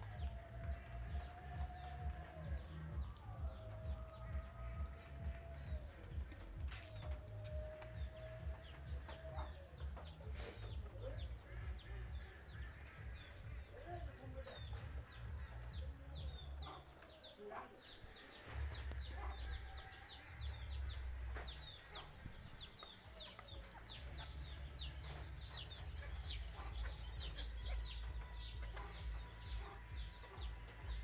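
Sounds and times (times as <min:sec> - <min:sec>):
chickens peeping: 0:18.1 - 0:31.0.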